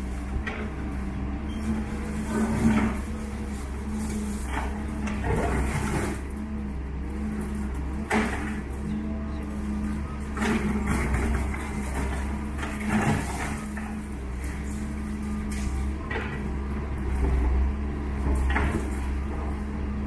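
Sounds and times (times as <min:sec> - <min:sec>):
diesel excavator engine running: 0:00.0 - 0:20.0
excavator bucket scraping rubble: 0:00.0 - 0:20.0
falling debris crashing: 0:01.7 - 0:06.3, 0:10.2 - 0:16.4.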